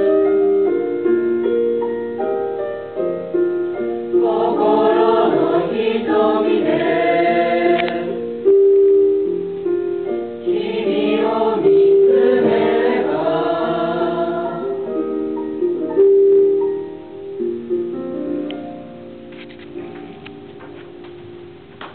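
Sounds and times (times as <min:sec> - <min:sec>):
students singing in chorus: 0:04.2 - 0:08.3, 0:10.4 - 0:15.0.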